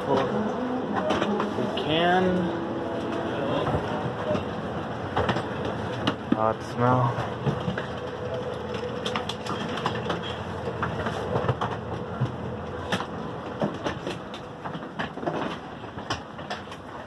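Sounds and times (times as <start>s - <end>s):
scattered clicks and knocks: 3.0s - 17.0s.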